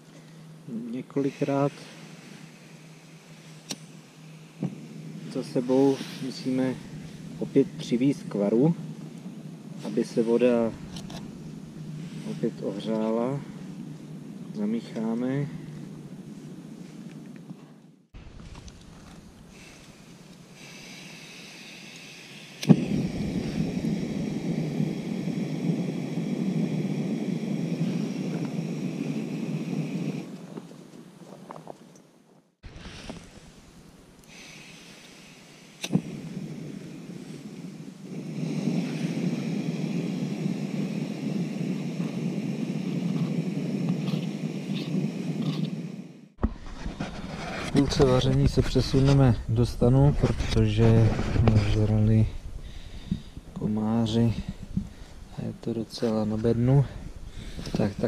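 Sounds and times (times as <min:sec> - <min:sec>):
gas burner roaring: 0:00.0 - 0:31.2, 0:32.6 - 0:58.0
gas hissing: 0:00.0 - 0:31.8, 0:32.6 - 0:58.0
burner ignition click: 0:03.6 - 0:04.0, 0:04.6 - 0:15.4, 0:21.9 - 0:31.0, 0:34.1 - 0:46.0.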